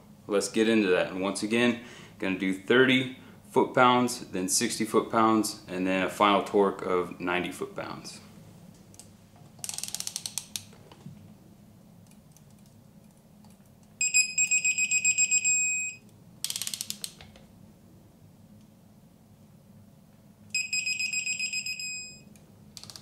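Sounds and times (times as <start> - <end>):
rapid high beeping: 14.0 - 16.0, 20.6 - 22.2
torque wrench ratchet clicks: 16.4 - 17.1.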